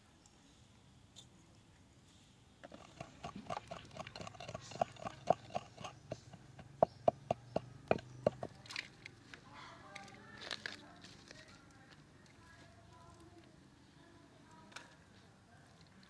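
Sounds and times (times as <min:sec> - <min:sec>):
pestle pounding in clay mortar: 0:02.6 - 0:08.6.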